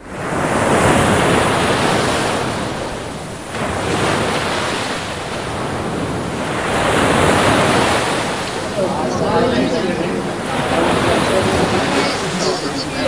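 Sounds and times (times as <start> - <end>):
sea waves breaking on shore: 0.0 - 13.0.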